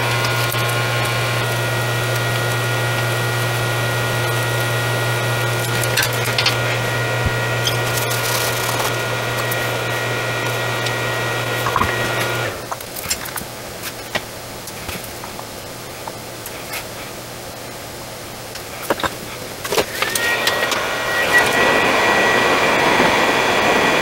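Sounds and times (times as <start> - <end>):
small motor humming: 0.0 - 12.8, 19.7 - 24.0.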